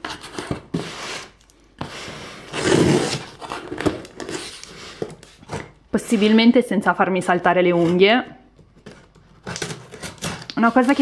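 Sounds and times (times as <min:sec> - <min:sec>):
scissors rasping along packing tape: 0:09.4 - 0:11.0.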